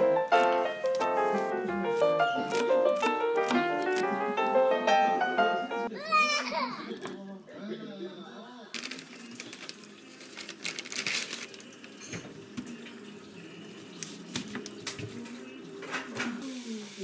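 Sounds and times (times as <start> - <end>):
rice paper sheets crackling: 0.3 - 4.2, 8.8 - 12.0
plastic bag crinkling: 0.4 - 4.1, 8.8 - 12.0.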